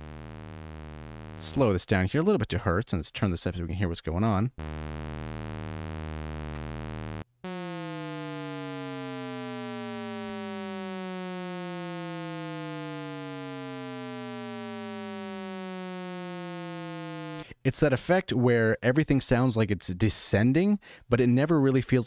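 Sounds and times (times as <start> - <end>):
endlessly falling synth tone: 4.6 - 17.4.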